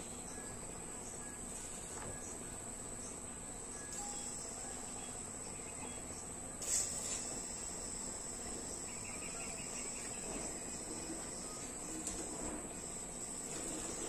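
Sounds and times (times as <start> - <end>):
high-pitched whine: 3.7 - 14.0.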